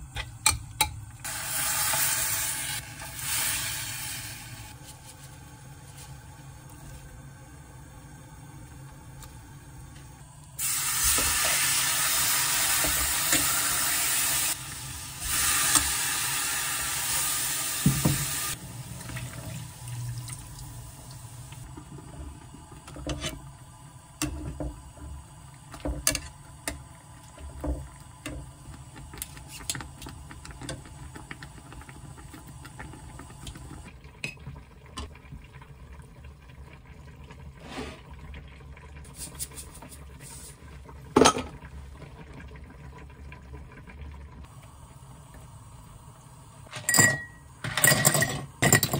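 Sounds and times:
meat sizzling in a frying pan: 0:01.2 - 0:04.7, 0:10.6 - 0:18.6.

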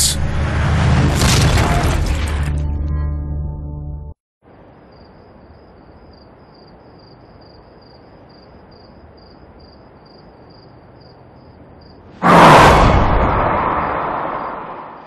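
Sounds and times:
insects chirping: 0:04.4 - 0:12.1.

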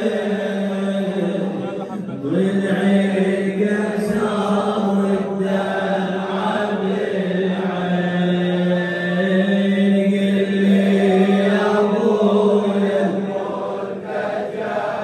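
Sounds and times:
men chanting a lament: 0:00.0 - 0:15.0.

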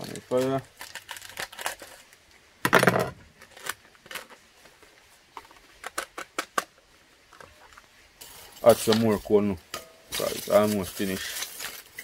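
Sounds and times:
rustling scrape: 0:07.6 - 0:09.4, 0:10.0 - 0:12.0.

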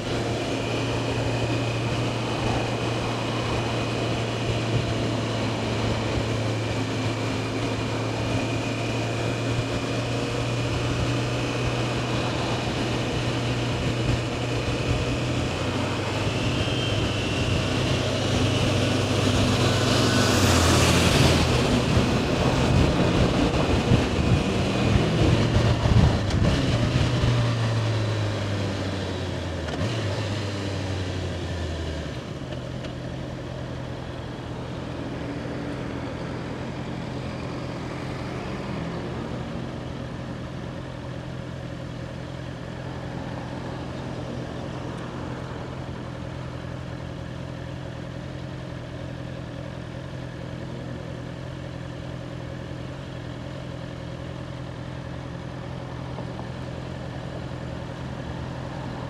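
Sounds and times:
motorcycle engine slowing to idle: 0:43.9 - 0:59.0.

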